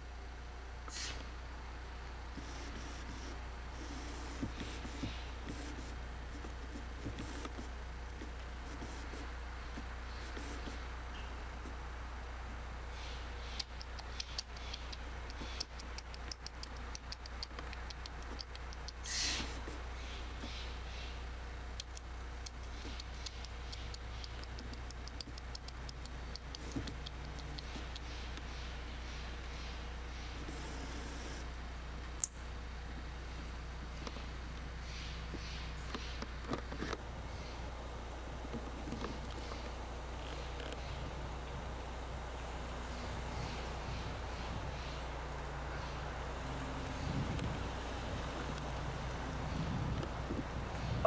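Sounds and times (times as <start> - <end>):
low electrical hum: 0.0 - 51.0
chipmunk chipping: 2.4 - 11.8, 13.0 - 31.4.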